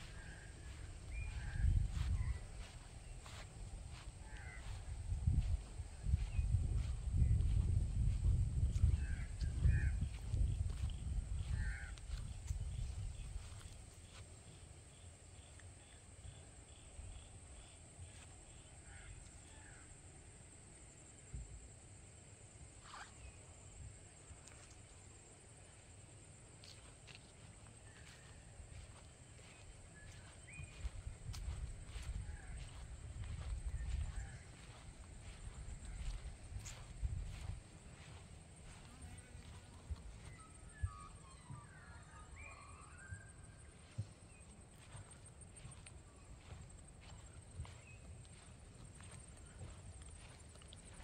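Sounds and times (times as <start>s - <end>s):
faint bird calls: 0.0s - 7.6s, 8.6s - 20.0s, 27.8s - 51.0s
soft footsteps walking: 0.0s - 14.5s, 26.4s - 41.7s, 43.6s - 51.0s.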